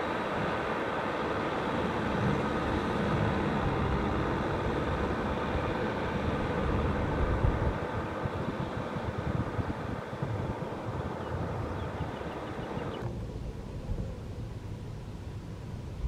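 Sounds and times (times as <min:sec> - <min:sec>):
tractor diesel engine running: 0:00.0 - 0:15.7.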